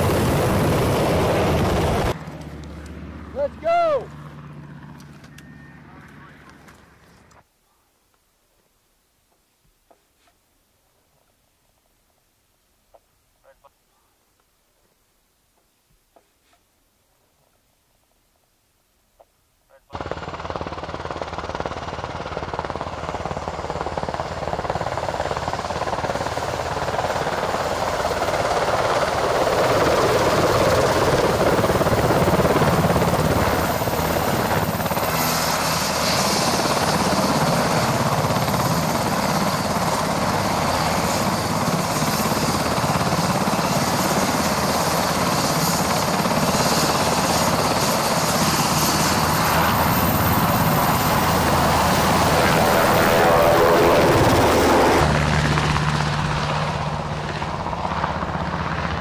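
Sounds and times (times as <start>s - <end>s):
high turbine whine: 0.0s - 2.2s, 23.4s - 59.0s
helicopter rotors and engines: 0.0s - 7.4s, 19.9s - 59.0s.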